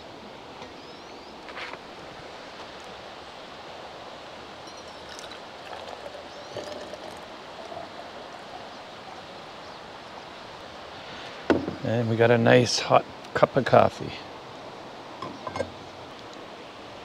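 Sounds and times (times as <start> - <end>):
river rushing: 0.0 - 17.0
faint clinks and knocks: 4.6 - 7.2, 15.2 - 15.8.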